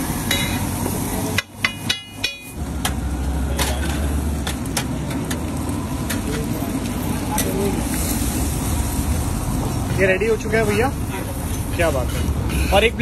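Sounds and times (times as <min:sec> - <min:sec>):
frying hiss: 0:00.0 - 0:13.0
metal spatula scraping griddle: 0:09.9 - 0:13.0.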